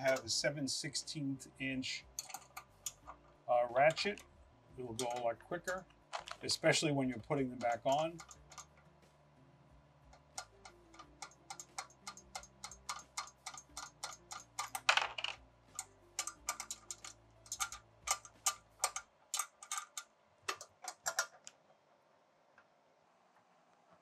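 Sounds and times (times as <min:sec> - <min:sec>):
ratchet wrench clicking: 0:02.2 - 0:03.2, 0:05.0 - 0:05.8, 0:07.2 - 0:08.8, 0:10.1 - 0:15.0, 0:15.7 - 0:21.4.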